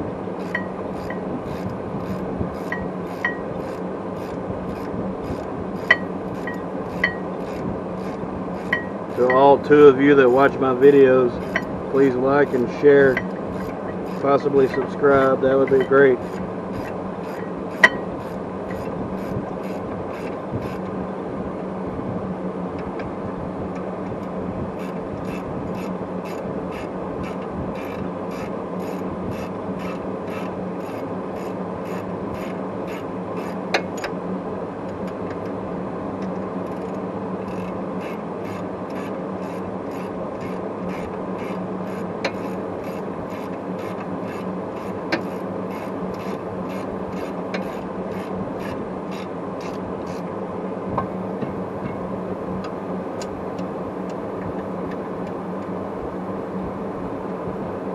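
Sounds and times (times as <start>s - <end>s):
low hum: 0.0s - 57.9s.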